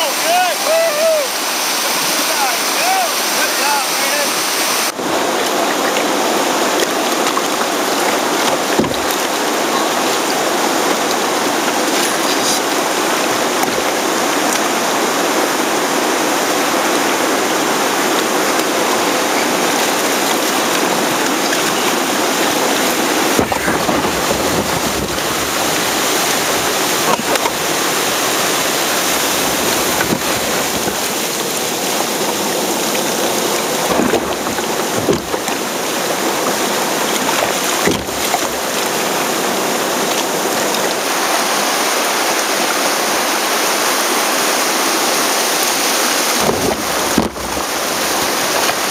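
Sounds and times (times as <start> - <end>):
rushing river rapids: 0.0 - 48.9
water splashing over deck: 0.0 - 48.9
sharp splashes or knocks: 6.7 - 14.7, 18.6 - 38.9, 46.2 - 48.9.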